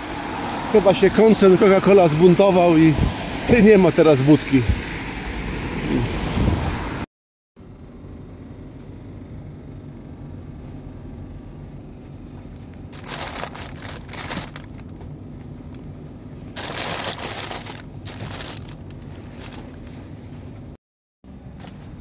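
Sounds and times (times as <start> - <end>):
steady low hum: 7.6 - 22.0
paper bag crinkling: 12.9 - 15.0, 16.5 - 20.0.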